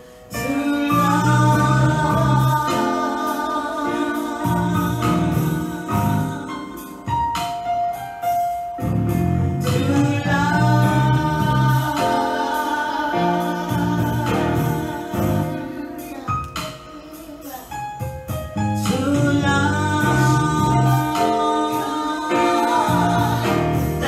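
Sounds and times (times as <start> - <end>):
keyboard accompaniment: 0.0 - 24.0
women singing gospel song: 0.4 - 7.2, 9.6 - 16.2, 18.8 - 24.0.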